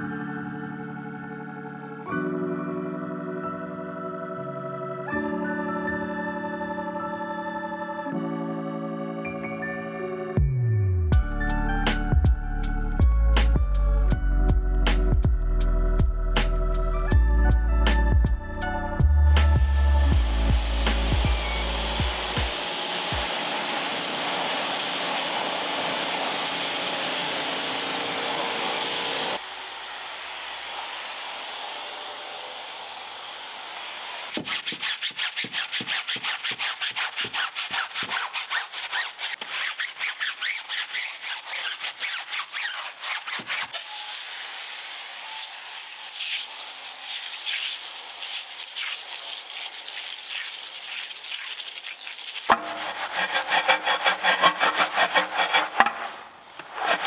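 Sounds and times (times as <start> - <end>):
stiff brush scrubbing: 19.4 - 29.4, 34.3 - 57.0
cleaning machine whirring: 20.2 - 34.3, 43.8 - 51.0, 52.5 - 57.0.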